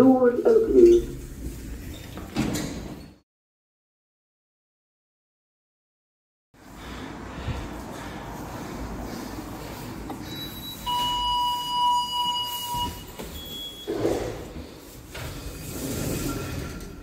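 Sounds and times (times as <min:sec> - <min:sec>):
lift electronic beep: 0:10.2 - 0:14.0
lift doors sliding: 0:10.2 - 0:17.0.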